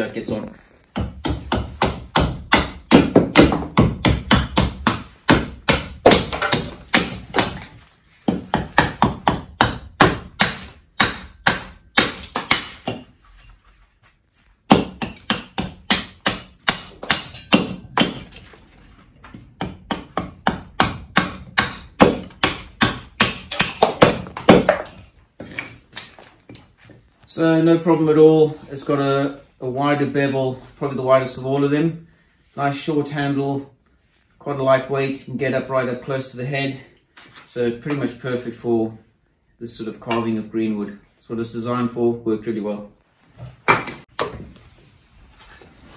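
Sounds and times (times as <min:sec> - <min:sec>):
hatchet chopping wood: 0:00.9 - 0:13.1, 0:14.7 - 0:18.5, 0:19.2 - 0:26.6.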